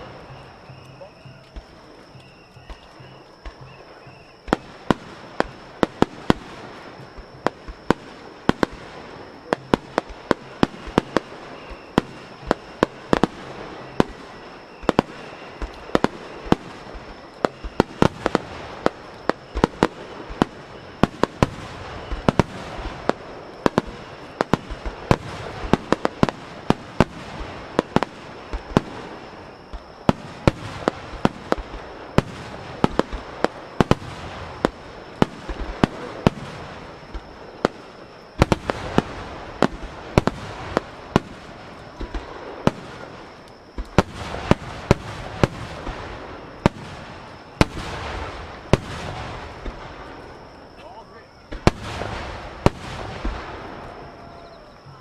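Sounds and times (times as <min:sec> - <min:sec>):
firework crackle: 0:00.0 - 0:55.0.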